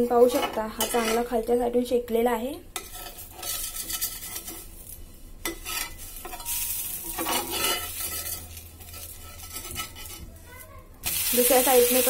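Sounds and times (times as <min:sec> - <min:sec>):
crepe sizzling in a pan: 0:02.8 - 0:12.0.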